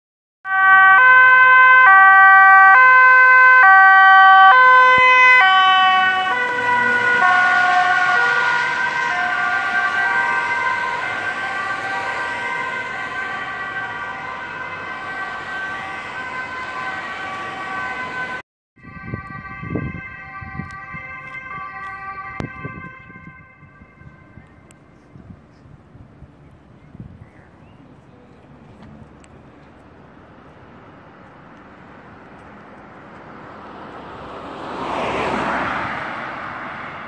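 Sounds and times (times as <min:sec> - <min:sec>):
two-tone ambulance siren: 0:00.4 - 0:25.3
traffic noise: 0:00.5 - 0:37.0.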